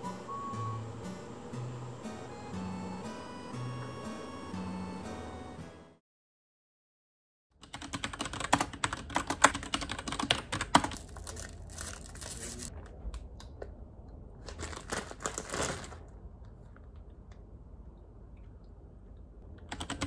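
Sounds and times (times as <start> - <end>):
computer keyboard typing: 7.6 - 11.3, 19.6 - 20.0.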